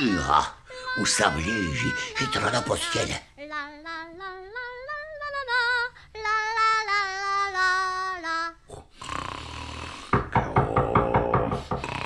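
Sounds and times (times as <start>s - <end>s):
woman singing unaccompanied: 0.0s - 8.7s.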